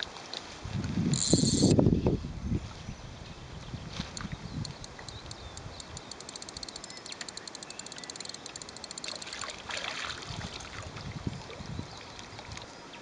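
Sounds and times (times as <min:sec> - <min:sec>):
fishing reel clicking: 0:01.1 - 0:01.8, 0:04.1 - 0:09.5
fish splashing at surface: 0:09.1 - 0:10.9.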